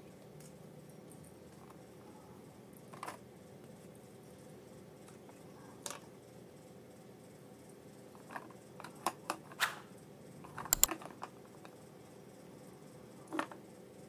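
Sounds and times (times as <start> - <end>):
plastic toy cookware clicking: 10.7 - 11.0.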